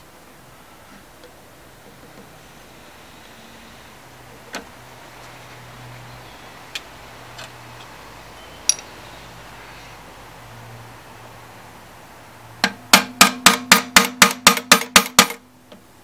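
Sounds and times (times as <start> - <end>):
hammer tapping metal: 12.6 - 15.4.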